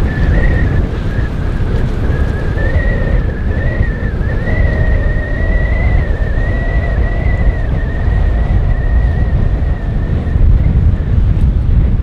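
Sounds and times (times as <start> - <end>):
high wavering whine: 0.0 - 12.0
wind buffeting microphone: 0.0 - 12.0.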